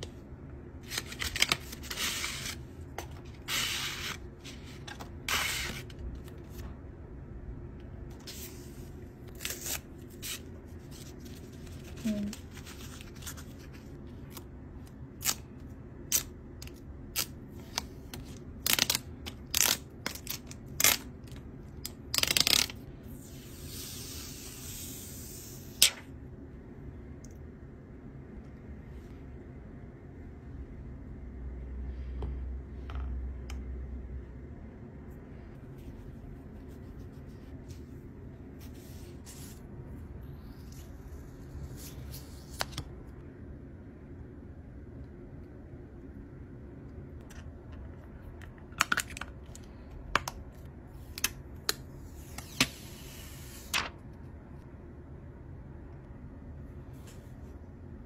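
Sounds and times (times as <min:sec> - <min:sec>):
low background hum: 0:00.0 - 0:58.0.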